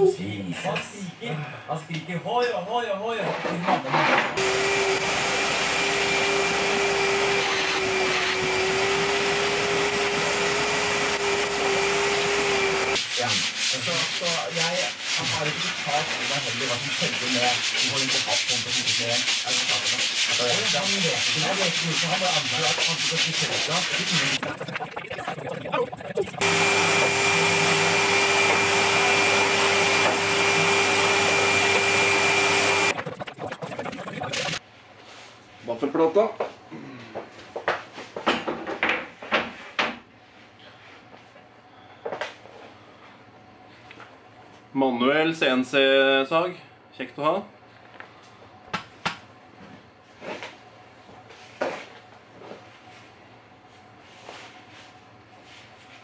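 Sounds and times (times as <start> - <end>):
electric motor whine: 4.4 - 13.0, 26.4 - 32.9
vacuum cleaner running: 4.4 - 13.0, 26.4 - 33.0.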